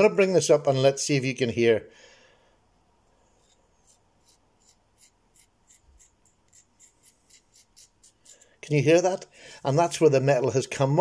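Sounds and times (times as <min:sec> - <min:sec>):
finger scratching knife blade: 0:03.4 - 0:08.6.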